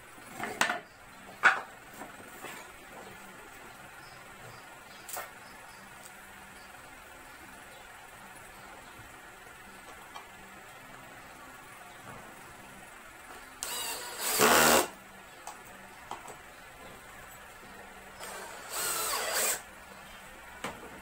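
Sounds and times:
cordless drill driving screws: 13.6 - 14.9, 18.2 - 19.6.

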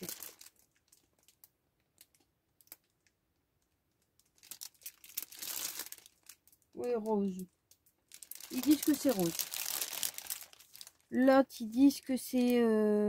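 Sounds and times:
packaging crinkling: 0.0 - 12.6
paper pack being handled: 8.1 - 11.0.

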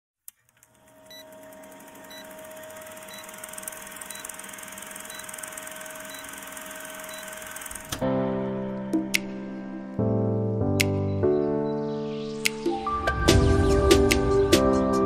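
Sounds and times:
film projector clatter: 0.5 - 8.0
short beeps: 6.0 - 6.4, 7.0 - 7.4.

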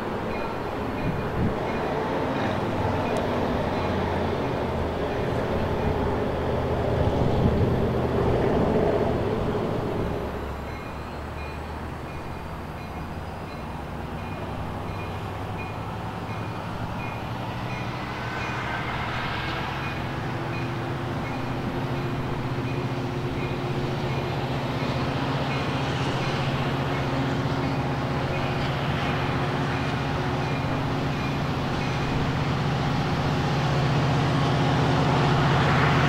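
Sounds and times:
diesel locomotive engine hum: 0.0 - 36.0
crossing bell dinging: 0.2 - 4.6, 10.6 - 18.7, 19.8 - 32.6.

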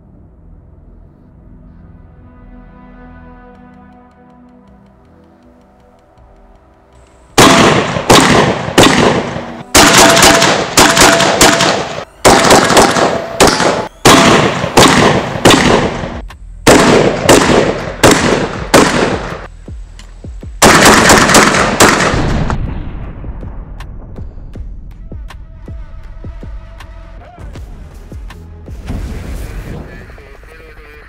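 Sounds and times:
shotgun firing rapidly: 7.4 - 19.5, 20.6 - 22.6.

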